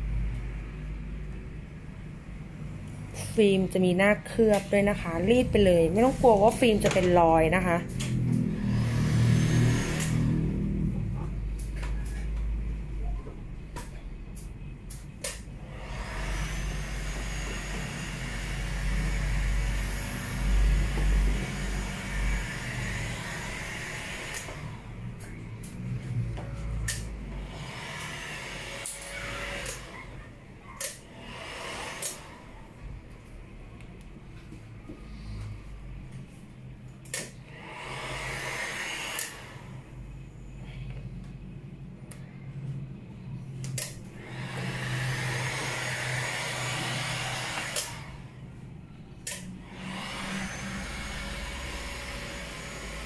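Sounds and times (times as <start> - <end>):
heat gun blowing hiss: 37.6 - 39.6.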